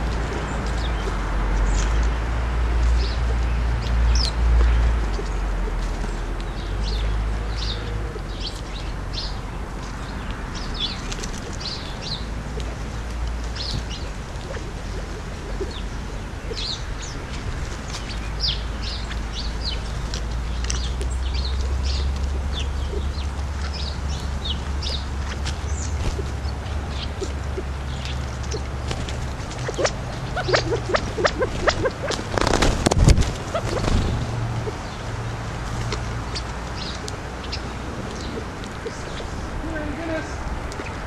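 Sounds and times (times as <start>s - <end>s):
birds chirping: 0.0s - 41.0s
steady low rumble: 0.0s - 41.0s.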